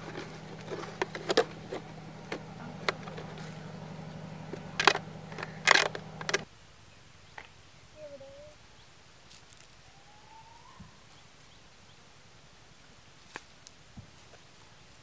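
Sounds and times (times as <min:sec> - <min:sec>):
blade scraping plastic pot: 0:00.0 - 0:06.4
handling clicks and taps: 0:00.0 - 0:06.4
low hum: 0:00.0 - 0:06.4.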